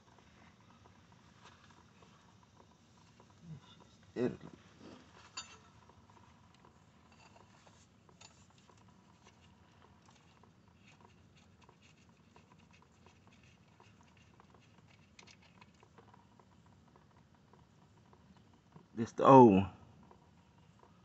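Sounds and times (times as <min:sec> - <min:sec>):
small clicks and taps: 0:05.2 - 0:19.0.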